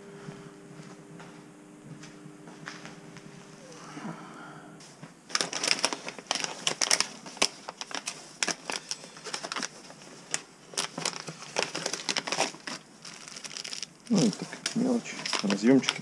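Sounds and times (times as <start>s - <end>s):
plastic packaging crinkling: 5.2s - 16.0s.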